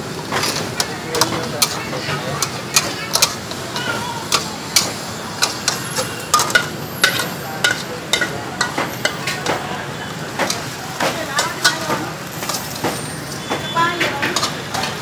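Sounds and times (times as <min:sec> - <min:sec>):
market background noise: 0:00.0 - 0:15.0
metal spatula clanking on wok: 0:00.1 - 0:09.7, 0:10.3 - 0:15.0.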